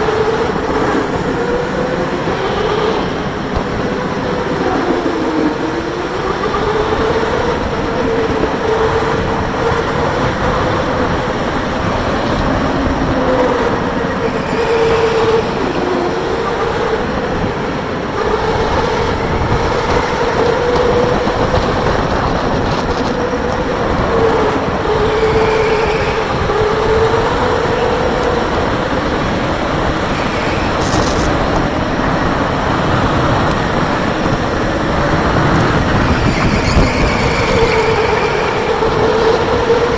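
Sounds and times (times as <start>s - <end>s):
kart rumbling and rattling on track: 0.0s - 39.9s
electric motor whining: 30.0s - 31.7s.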